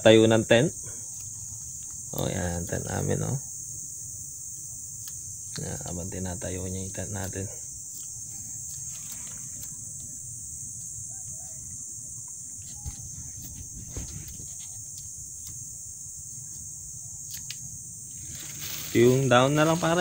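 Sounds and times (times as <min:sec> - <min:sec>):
high-pitched insect drone: 0:00.0 - 0:20.0
wind rumbling on microphone: 0:12.7 - 0:14.7.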